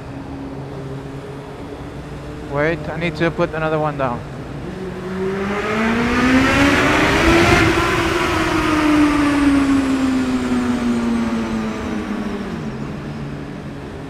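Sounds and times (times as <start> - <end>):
motorcycle engine accelerating: 0.0 - 14.0.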